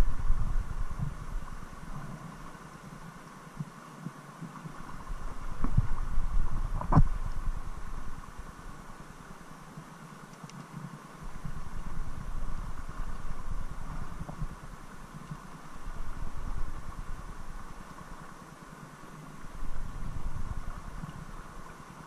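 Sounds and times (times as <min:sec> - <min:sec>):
low rumbling on microphone: 0:00.0 - 0:02.5, 0:04.9 - 0:08.6, 0:11.2 - 0:15.0, 0:15.6 - 0:17.9, 0:19.4 - 0:21.6
river current rushing: 0:00.0 - 0:22.0.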